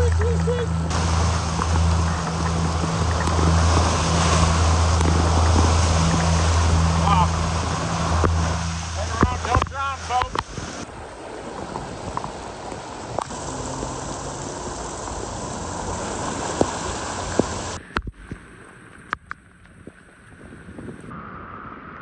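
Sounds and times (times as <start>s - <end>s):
heavy rain: 0.0s - 18.1s
rushing floodwater: 0.0s - 21.1s.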